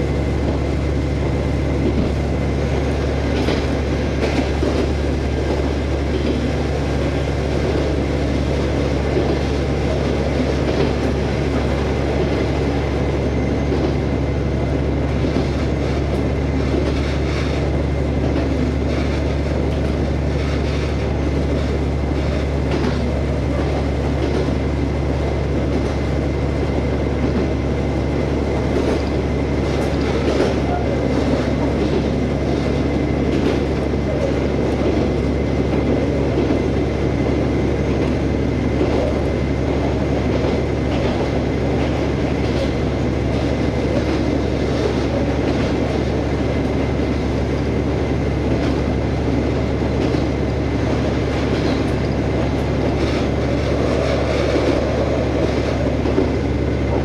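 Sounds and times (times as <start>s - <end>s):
diesel engine drone: 0.0s - 57.0s
train wheels rumbling on rails: 0.0s - 57.0s.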